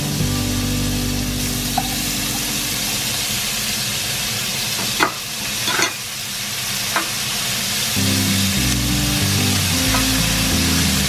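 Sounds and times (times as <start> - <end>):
meat and onion sizzling in pan: 1.4 - 11.0.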